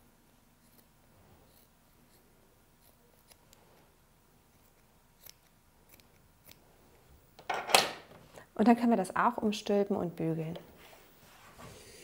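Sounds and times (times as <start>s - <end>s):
small scissors snipping: 2.8s - 3.6s, 4.5s - 6.6s.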